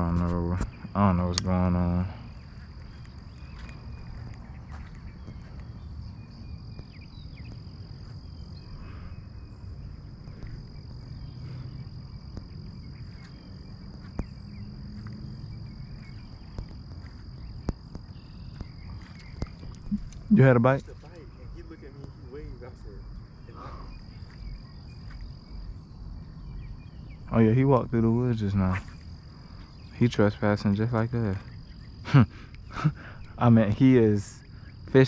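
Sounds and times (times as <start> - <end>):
insects droning: 0.0 - 35.0
sharp clicks: 1.3 - 1.5.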